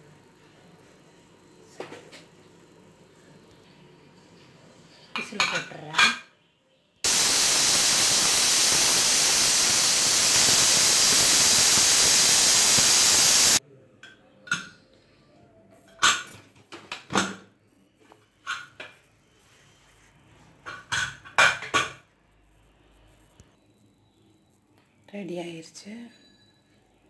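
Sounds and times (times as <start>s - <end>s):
pressure cooker steam hissing: 7.1s - 13.6s.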